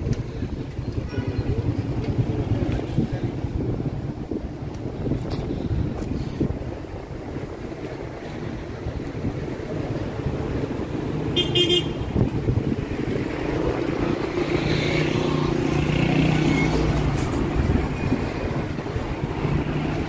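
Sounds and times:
cars driving past: 7.6s - 20.0s
car horn toot: 11.3s - 12.1s.

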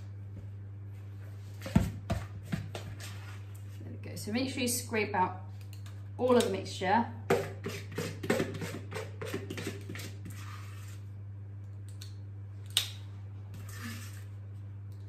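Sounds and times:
metal scoop scraping a bowl: 7.4s - 11.1s, 13.6s - 14.3s.

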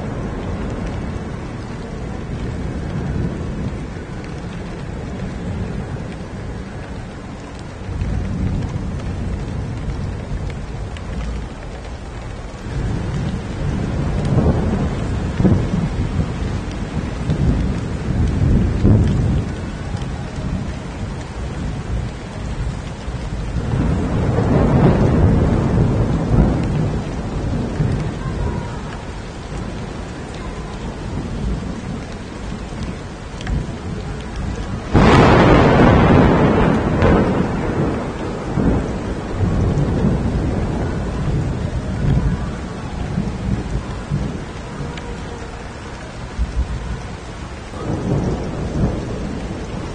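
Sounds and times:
heavy rain pouring: 0.0s - 49.9s
thunder rumbling: 0.0s - 49.9s
loud thunderclap: 12.2s - 45.0s, 46.2s - 49.9s.

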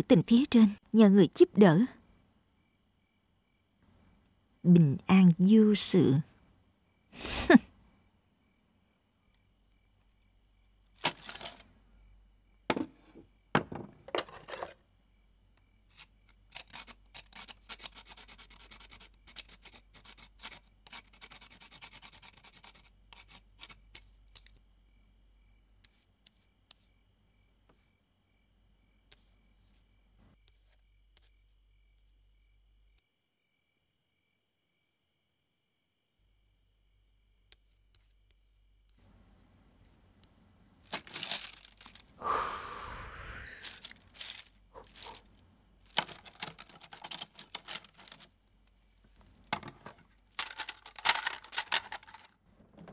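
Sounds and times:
sharp wooden knocks: 12.7s - 14.2s
brush scratching bamboo: 15.9s - 24.5s, 40.9s - 42.2s, 43.5s - 48.3s.

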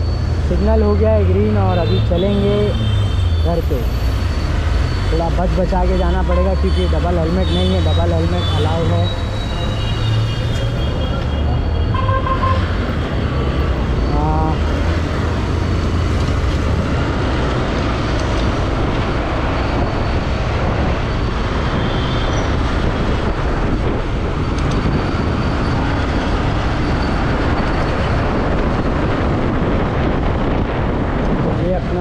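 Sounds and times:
passing traffic: 0.0s - 32.0s
wind rumble over microphone: 10.6s - 32.0s.

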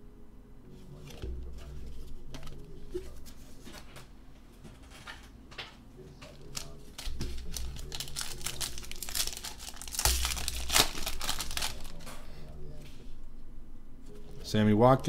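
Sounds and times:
plastic wrapper crinkling: 6.3s - 12.2s
plastic wrapper ripping: 6.4s - 12.1s.

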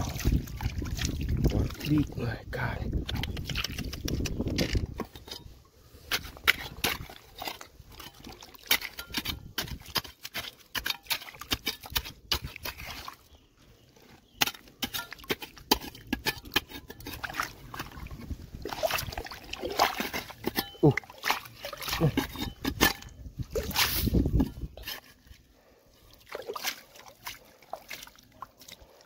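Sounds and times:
stones clicking and knocking: 3.0s - 5.5s.

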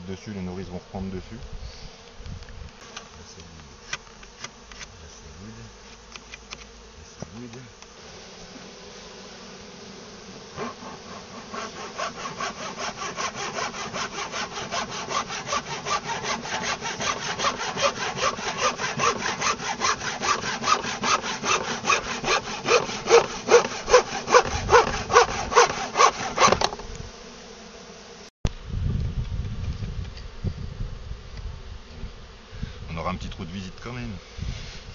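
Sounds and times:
bees buzzing: 0.0s - 34.9s
hand saw cutting wood: 10.5s - 26.9s.

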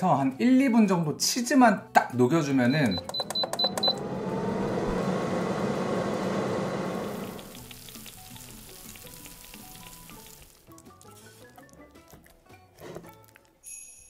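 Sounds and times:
soft background music: 0.0s - 3.8s, 7.2s - 14.0s
control panel beeps: 2.6s - 4.3s
air fryer fan whining: 2.6s - 8.0s.

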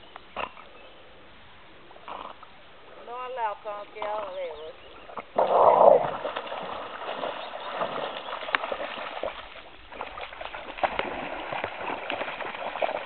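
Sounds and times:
dog splashing in water: 5.4s - 13.0s.

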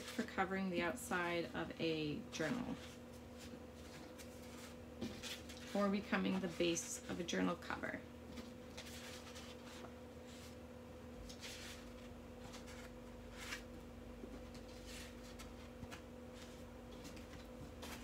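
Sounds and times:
faint steady hum: 0.0s - 18.0s
paper swishing and rustling: 2.6s - 7.2s, 8.3s - 10.6s, 11.2s - 13.7s, 14.4s - 18.0s.

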